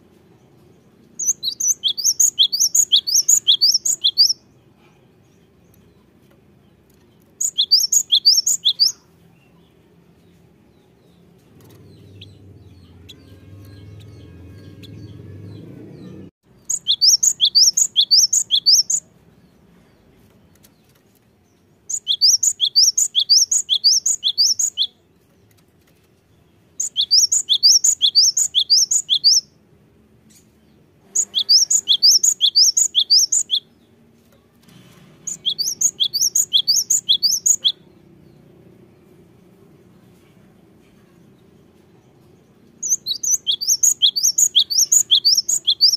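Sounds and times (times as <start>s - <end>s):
bird singing rapid high notes: 1.2s - 4.5s, 7.4s - 9.1s, 11.9s - 19.1s, 21.9s - 25.0s, 26.8s - 29.5s, 31.1s - 33.8s, 35.3s - 37.9s, 42.8s - 45.9s.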